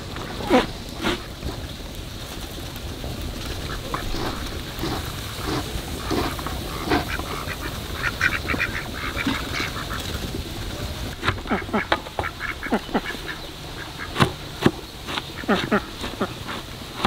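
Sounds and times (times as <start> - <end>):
ducks quacking: 0.0 - 1.7, 3.4 - 17.0.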